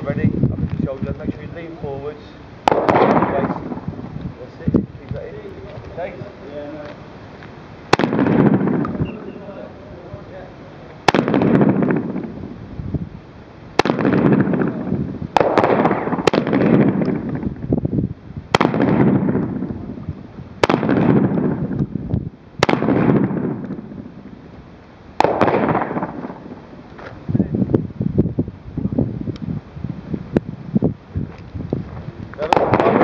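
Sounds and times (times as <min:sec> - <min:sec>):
rolling echo of gunshots: 0:02.6 - 0:04.1, 0:07.9 - 0:09.5, 0:11.0 - 0:12.6, 0:13.8 - 0:17.6, 0:18.5 - 0:20.0, 0:20.6 - 0:21.8, 0:22.6 - 0:24.3, 0:25.2 - 0:26.8, 0:32.4 - 0:33.0
shotgun blasts: 0:02.6 - 0:04.1, 0:07.9 - 0:09.5, 0:11.0 - 0:12.6, 0:13.8 - 0:17.6, 0:18.5 - 0:20.0, 0:20.6 - 0:21.8, 0:22.6 - 0:24.3, 0:25.2 - 0:26.7, 0:32.4 - 0:33.0.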